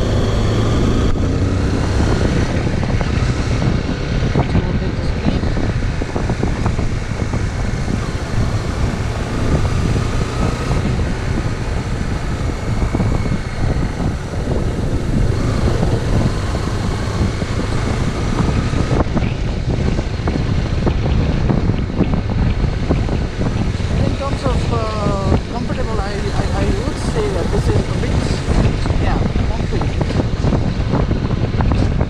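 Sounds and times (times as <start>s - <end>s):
motorcycle engine running: 0.0s - 32.0s
wind buffeting microphone: 0.0s - 32.0s.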